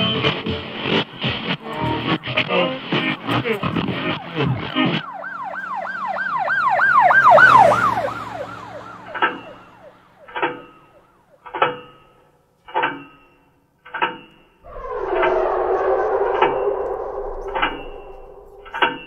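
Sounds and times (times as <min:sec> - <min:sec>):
siren yelping: 0:04.4 - 0:10.2, 0:14.6 - 0:19.0.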